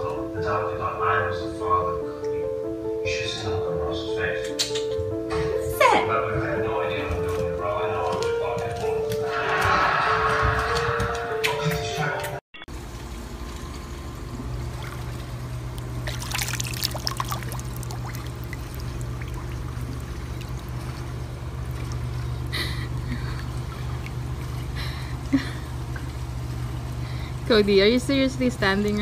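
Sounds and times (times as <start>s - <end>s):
water sloshing and trickling: 12.7s - 27.4s
low hum: 12.7s - 29.0s
water splashing: 12.9s - 25.0s.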